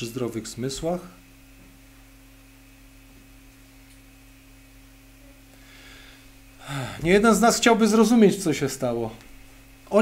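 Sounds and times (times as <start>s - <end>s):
low electrical mains hum: 0.0s - 10.0s.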